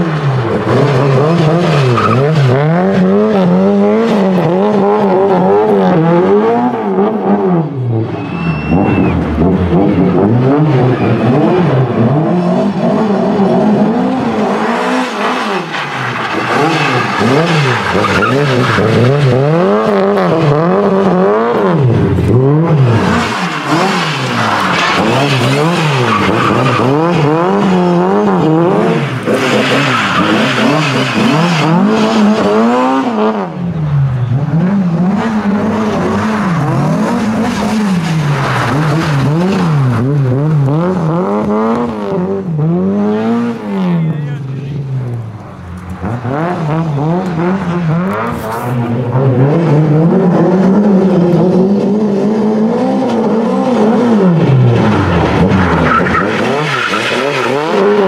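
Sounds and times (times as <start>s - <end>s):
race car engine revving: 0.0s - 58.0s
tyres skidding on loose dirt: 8.1s - 33.1s, 34.6s - 42.2s, 52.9s - 58.0s.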